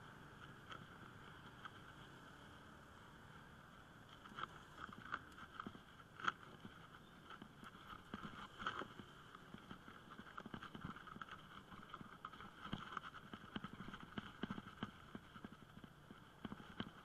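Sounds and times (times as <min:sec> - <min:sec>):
bicycle rattling over bricks: 0:04.0 - 0:17.0.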